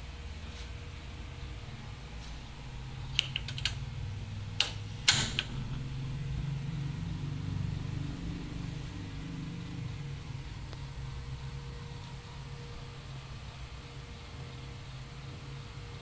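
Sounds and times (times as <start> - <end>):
gas stove igniter clicks: 4.6 - 5.7.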